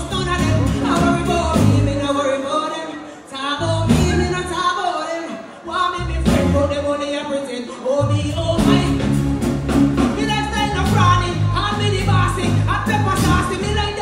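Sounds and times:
backing track with heavy bass: 0.0 - 2.1, 8.0 - 14.0
woman singing into microphone: 0.0 - 9.2, 10.1 - 14.0.

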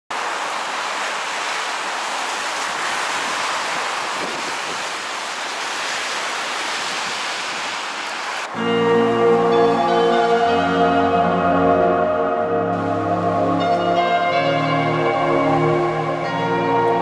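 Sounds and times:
city street noise: 0.1 - 17.0
music: 8.5 - 17.0.

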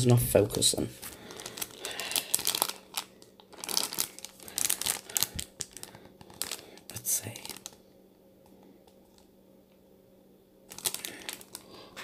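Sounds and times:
plastic packet crinkling: 0.5 - 7.8, 10.7 - 12.0.

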